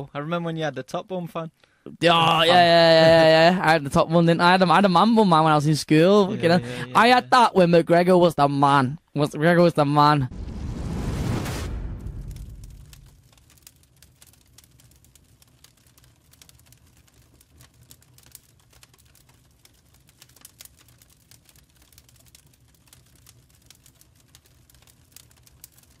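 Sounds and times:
fire crackling and popping: 1.6 - 8.4, 10.3 - 26.0
steady low rumble: 10.3 - 13.4.

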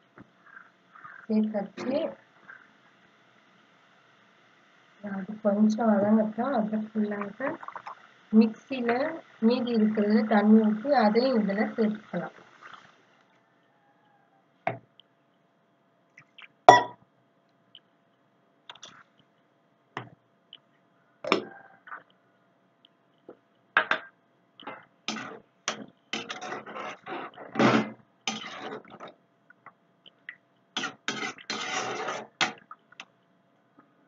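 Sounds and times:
utensils scraping metal pan: 25.1 - 29.1, 30.8 - 32.6.

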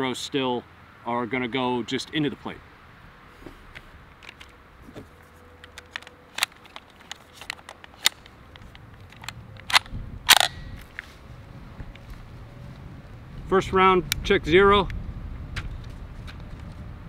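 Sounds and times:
metallic clicks of gun handling: 3.8 - 4.6, 5.5 - 11.1.

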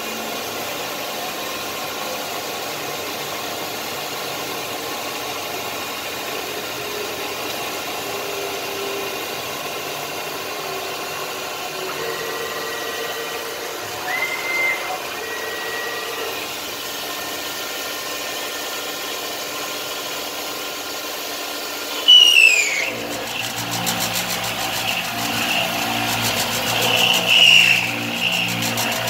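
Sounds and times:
milling machine cutting metal whine: 0.0 - 20.0, 21.9 - 29.0
short falling whine: 10.7 - 16.6, 22.0 - 29.0.

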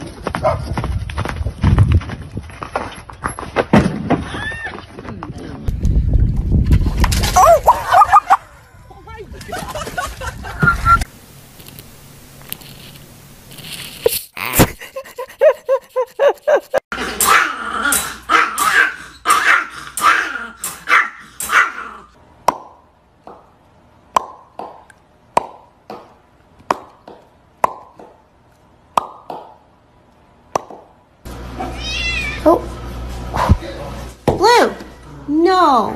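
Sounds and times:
small dog barking: 17.2 - 22.1.

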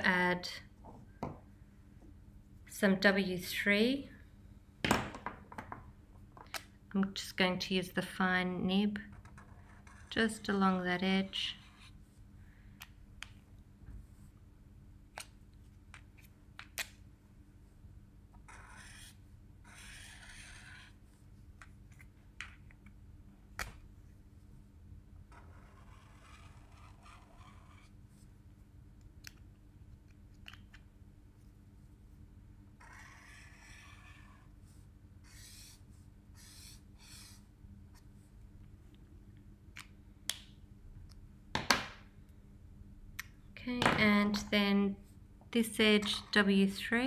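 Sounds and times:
low steady hum: 0.0 - 47.0
marker scratching on paper: 9.4 - 10.4, 11.3 - 12.2, 18.5 - 21.2, 25.3 - 28.2, 32.8 - 38.1.

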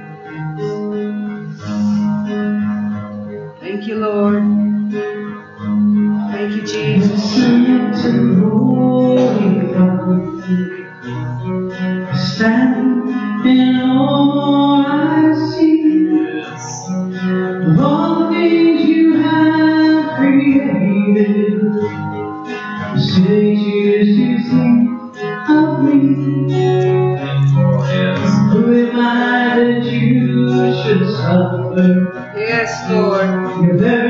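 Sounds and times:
strummed acoustic guitar: 0.0 - 34.0
person singing: 6.2 - 10.8, 12.2 - 17.0, 23.0 - 34.0.

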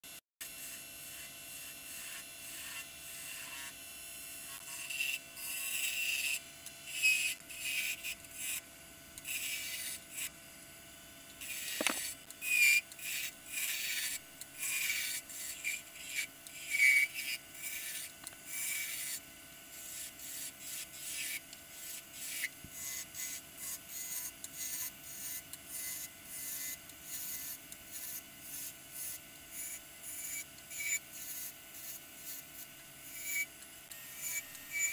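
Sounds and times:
wood lathe humming: 11.4 - 12.1
gouge scraping cuts on wood: 11.4 - 19.2.

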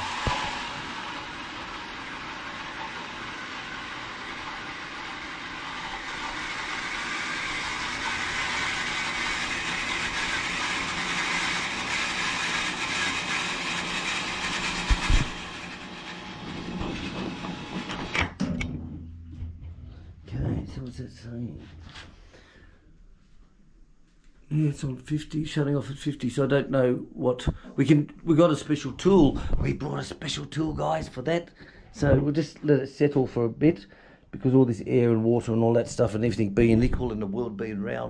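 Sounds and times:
electric water pump running: 0.0 - 18.4.

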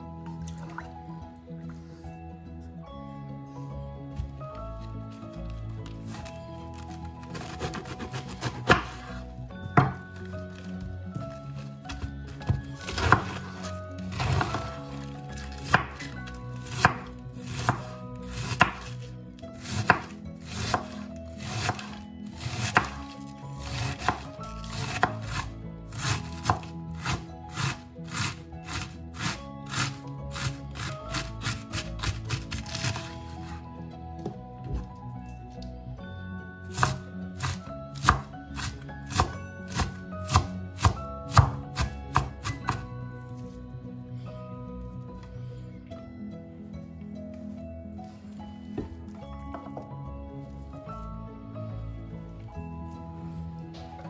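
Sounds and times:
knife chopping cabbage on board: 6.2 - 10.6, 12.6 - 19.0, 19.6 - 33.6, 36.7 - 42.9.

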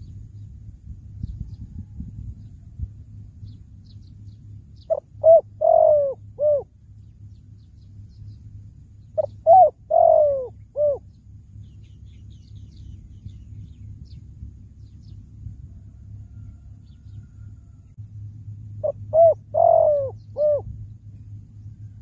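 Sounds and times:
dove cooing: 4.9 - 6.7, 9.2 - 11.1, 18.8 - 20.8.

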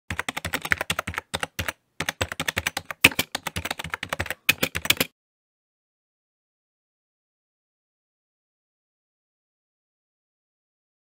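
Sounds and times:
keyboard typing clicks: 0.1 - 5.1.

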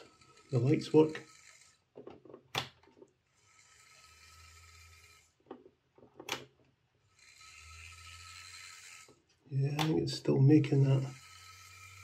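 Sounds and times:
small electric motor whirring: 0.0 - 2.0, 3.0 - 5.6, 7.0 - 12.0
sharp clicks and knocks: 5.4 - 6.7, 9.7 - 10.0.

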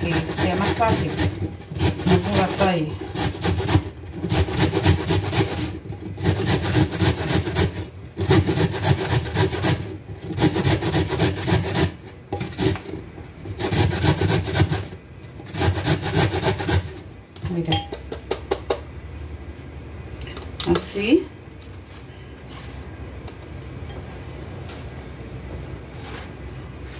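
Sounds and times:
carrot grating on metal grater: 0.0 - 17.1.

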